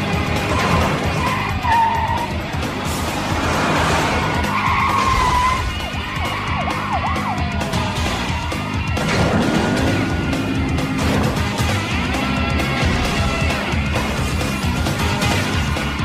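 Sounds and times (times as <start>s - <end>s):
background music: 0.0s - 16.0s
car engines running: 0.0s - 16.0s
car tyres squealing: 0.1s - 12.8s.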